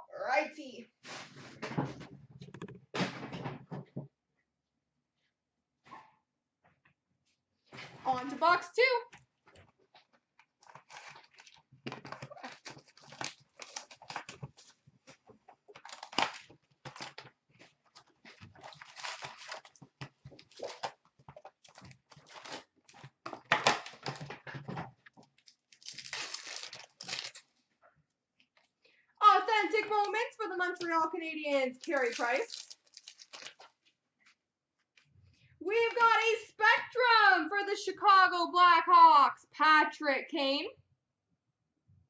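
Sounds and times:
cardboard and wrapping tearing: 10.6 - 14.8, 15.7 - 24.2, 25.4 - 27.6, 31.8 - 33.8
foil packs crinkling: 10.6 - 23.2, 25.3 - 27.6, 31.7 - 33.8.

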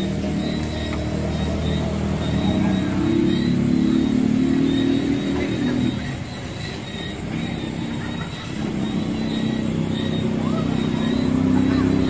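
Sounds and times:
motor vehicle engine running: 0.0 - 12.0.

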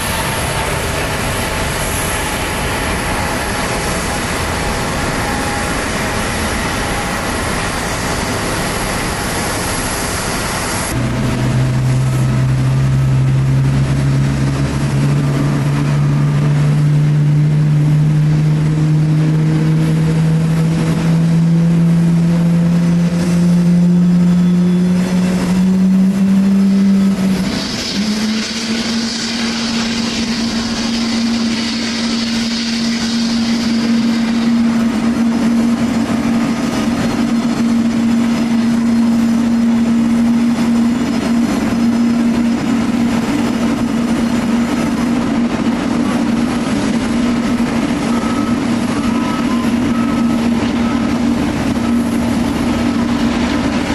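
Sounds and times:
hiss: 0.0 - 13.8, 24.9 - 51.1
jet engines running: 0.0 - 53.9.

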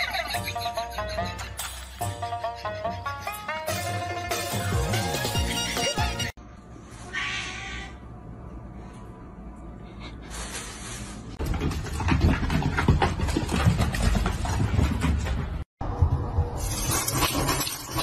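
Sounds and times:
kitten meowing: 7.1 - 8.0
rapid knocks and rustling: 11.4 - 16.2.

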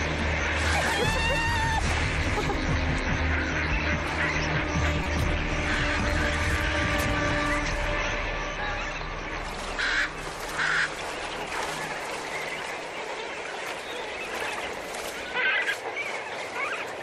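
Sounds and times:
flamingos honking: 0.0 - 13.1.

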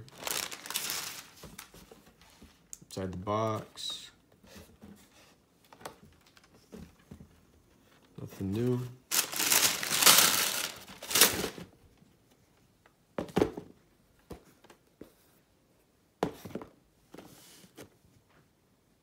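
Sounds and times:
tissue paper crinkling: 0.0 - 1.9, 9.1 - 11.6.

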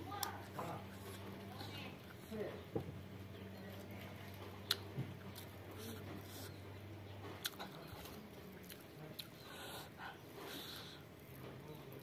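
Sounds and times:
fingers squishing food: 0.0 - 2.4, 3.8 - 12.0
faint low hum: 0.0 - 12.0
soft chewing: 0.0 - 12.0.

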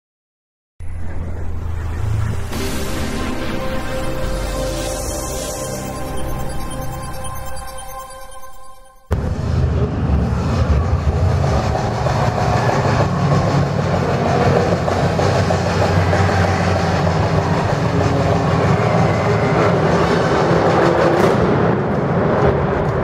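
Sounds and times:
soundtrack music over loudspeakers: 1.5 - 9.3.

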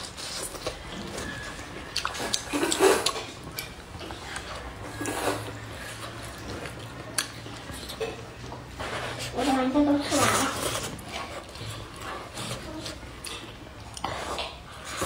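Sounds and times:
person chewing: 0.0 - 9.3, 10.3 - 15.0
slurping noodles: 4.2 - 7.0.

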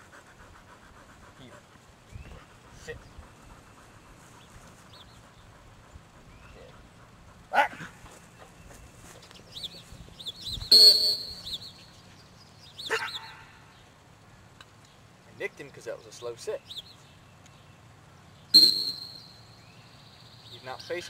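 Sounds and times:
birds chirping: 0.0 - 21.0
sharp whistle blast: 10.7 - 11.7, 18.5 - 19.4.

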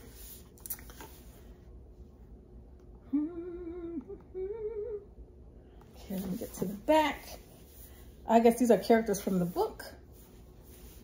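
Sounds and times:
woman humming held notes: 3.0 - 5.2.

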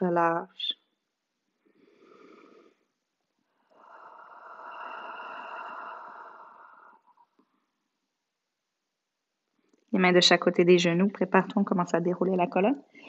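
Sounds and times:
inhale through nose: 1.7 - 2.9, 3.7 - 7.4
long exhale sigh: 3.7 - 7.3.

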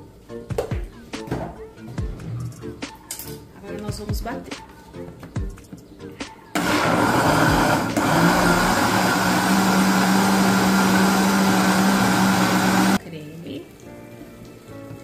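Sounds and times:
blender motor running: 6.6 - 13.0.

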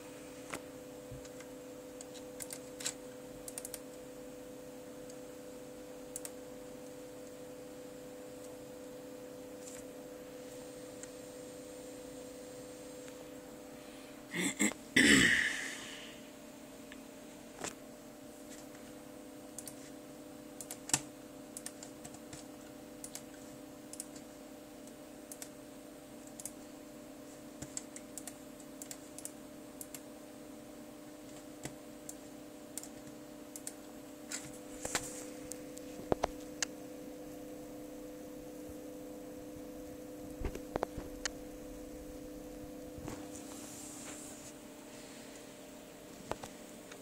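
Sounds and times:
laptop keys clicking: 1.2 - 3.8.

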